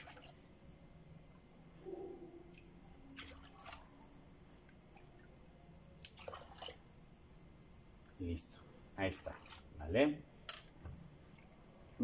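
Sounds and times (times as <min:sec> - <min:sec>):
spoon stirring watery liquid: 0:02.4 - 0:07.1
short scrapes or splashes: 0:09.2 - 0:09.7.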